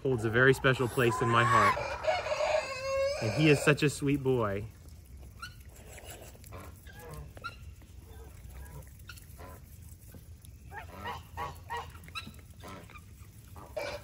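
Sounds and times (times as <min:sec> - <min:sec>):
geese honking: 0:00.0 - 0:03.7.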